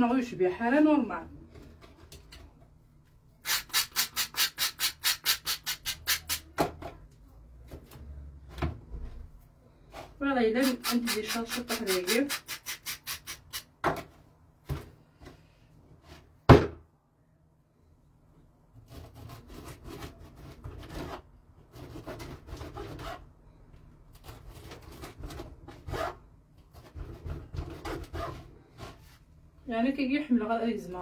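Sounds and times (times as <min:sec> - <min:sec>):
knife sawing through bread: 0:18.9 - 0:23.2.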